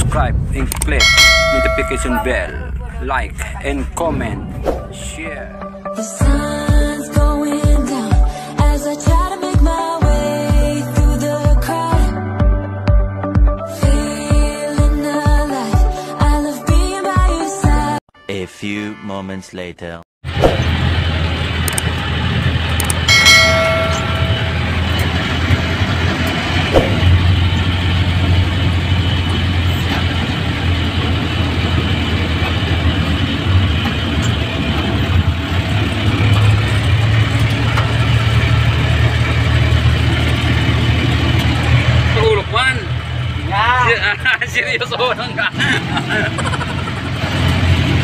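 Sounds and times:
diesel engine running: 0.0 - 5.9, 20.3 - 48.0
road noise: 0.0 - 6.0, 20.2 - 48.0.

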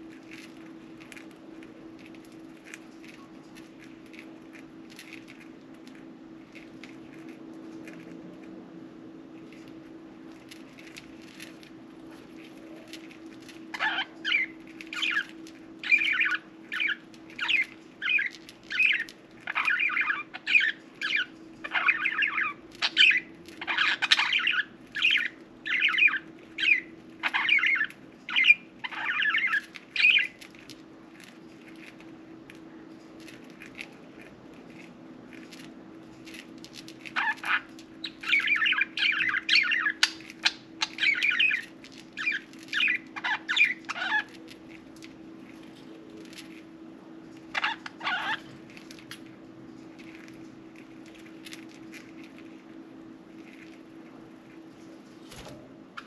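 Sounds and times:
low background hum: 0.0 - 56.0
budgerigars chirping: 13.7 - 30.4, 37.1 - 44.3, 47.5 - 48.4.

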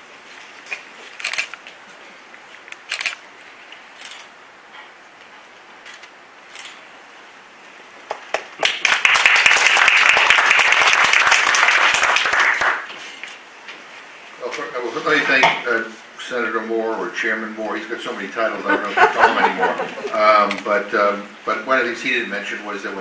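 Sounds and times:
audience applause: 8.1 - 12.9.

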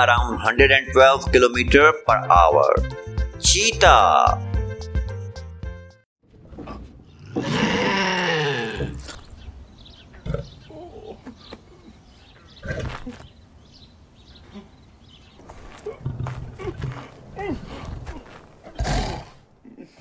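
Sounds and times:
cartoon big cat roar: 7.2 - 9.2.

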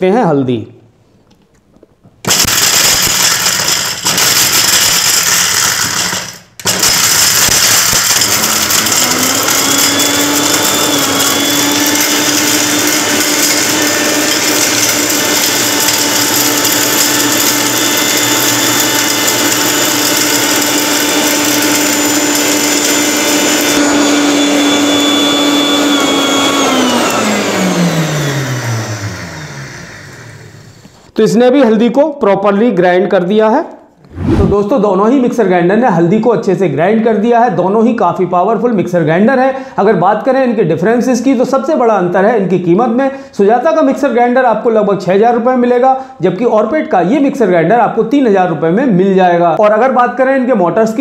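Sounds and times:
mixer grinder grinding: 2.2 - 31.1.

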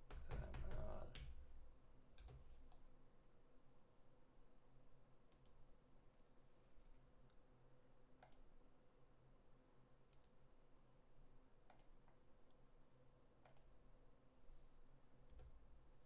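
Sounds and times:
faint steady hum: 0.0 - 16.0
computer mouse clicks: 2.2 - 3.3, 5.3 - 5.6, 8.2 - 8.5, 10.1 - 10.4, 11.7 - 12.2, 13.4 - 13.7, 15.3 - 15.6.

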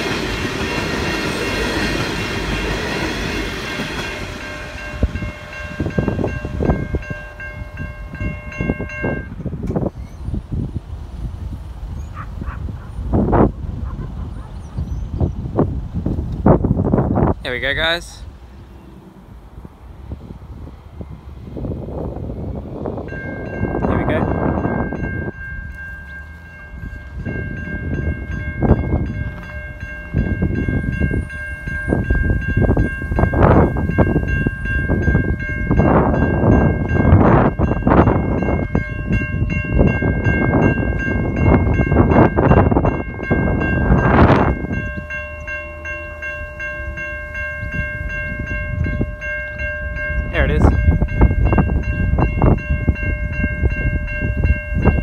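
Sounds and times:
level crossing warning bell ringing: 0.0 - 9.6, 22.8 - 55.0
wind buffeting microphone: 0.0 - 55.0.

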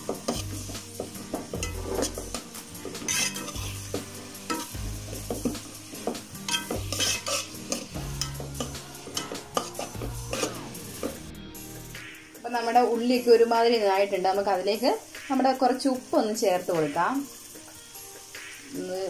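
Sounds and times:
onions sizzling in oil: 0.0 - 19.0
metal spoon scraping pot: 1.5 - 4.8, 6.4 - 10.7.

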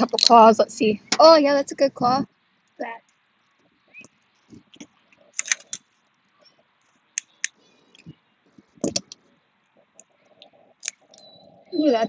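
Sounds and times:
shells cracking: 4.0 - 6.0.

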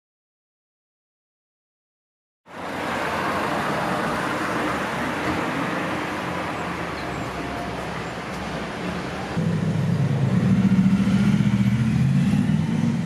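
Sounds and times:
street traffic hum: 2.5 - 13.0.

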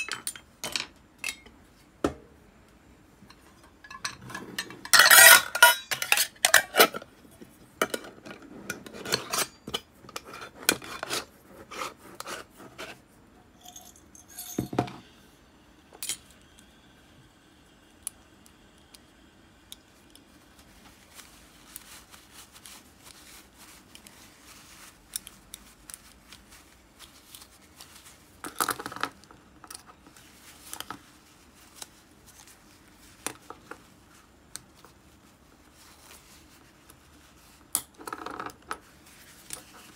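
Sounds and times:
glass jar and metal parts clinking: 3.8 - 6.9, 13.5 - 15.0.

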